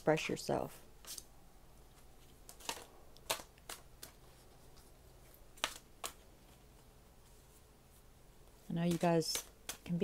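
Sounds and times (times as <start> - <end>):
cards being shuffled: 1.9 - 7.6, 8.4 - 10.0.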